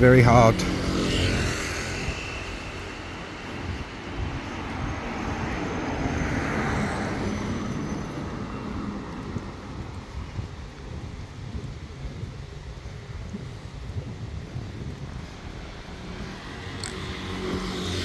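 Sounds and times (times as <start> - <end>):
cars driving past: 0.1 - 10.2, 15.3 - 18.0.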